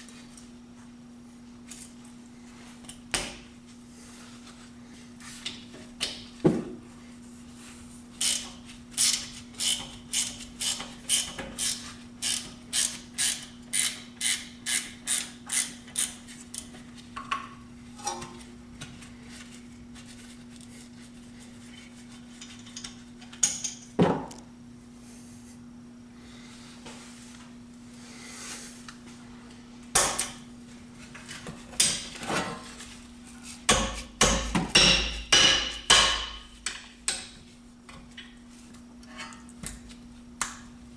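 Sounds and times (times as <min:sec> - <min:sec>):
sharp metal knocks: 0:33.7 - 0:37.3.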